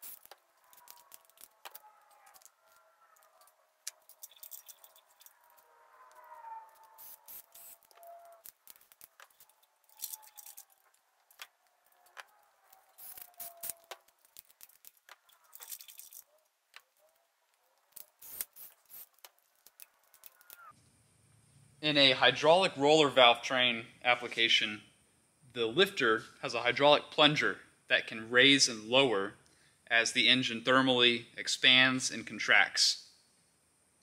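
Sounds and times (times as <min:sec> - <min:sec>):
rustling bursts: 0:06.7 - 0:16.2
metallic tool clicks and rattles: 0:07.0 - 0:11.4.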